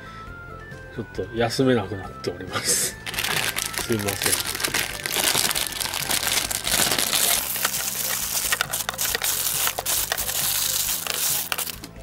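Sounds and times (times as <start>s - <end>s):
plastic wrapping crinkling: 3.0s - 12.0s.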